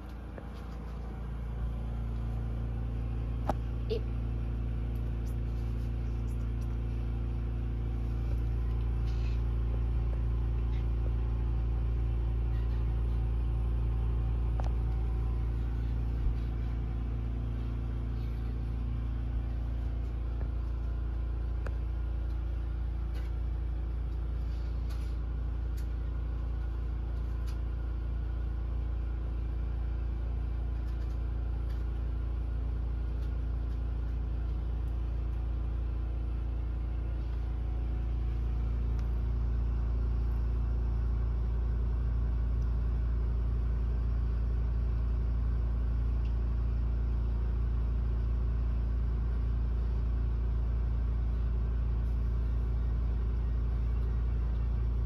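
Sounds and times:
low mechanical hum: 0.0s - 55.0s.

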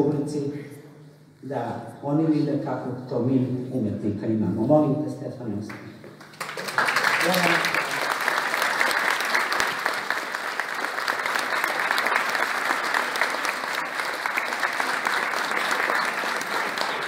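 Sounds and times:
audience applauding: 6.1s - 17.0s.

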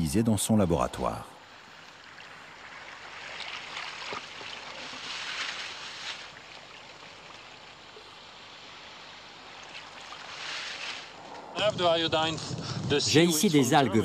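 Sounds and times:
seawater sloshing and splashing: 1.7s - 11.3s.

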